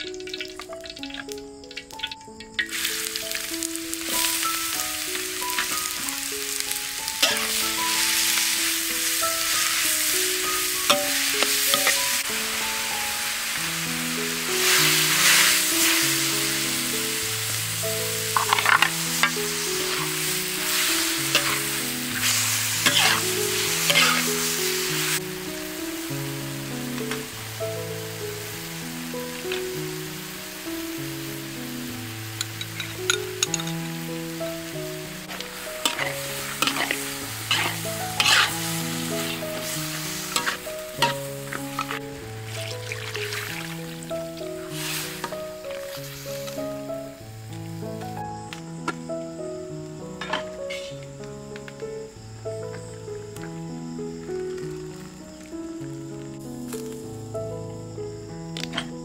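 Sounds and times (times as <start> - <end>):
chicken sizzling in a wok: 0.0 - 51.4
gentle background melody: 0.0 - 59.0
metal spatula scraping a wok: 7.2 - 7.7, 10.9 - 12.2, 18.4 - 20.1, 21.3 - 24.5, 35.3 - 42.0, 50.2 - 51.0.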